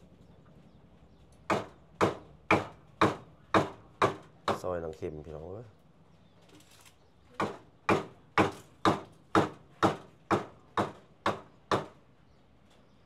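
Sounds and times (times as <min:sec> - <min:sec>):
cleaver chopping on wooden block: 0:01.5 - 0:04.7, 0:07.4 - 0:12.0.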